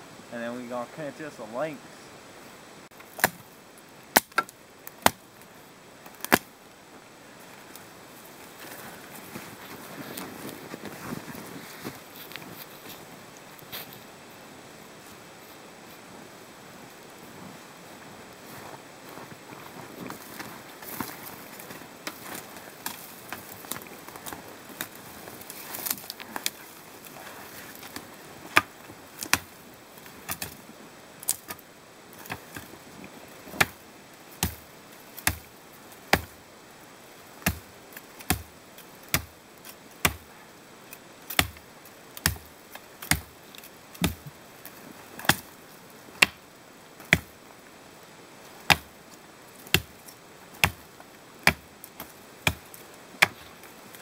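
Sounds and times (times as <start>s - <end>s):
branches rustling: 0.0s - 54.0s
blade chopping brush stems: 20.8s - 29.6s, 35.2s - 35.5s, 38.2s - 38.5s, 39.1s - 40.3s, 41.2s - 41.6s, 42.2s - 44.4s, 45.2s - 45.5s, 49.6s - 50.8s, 51.4s - 54.0s.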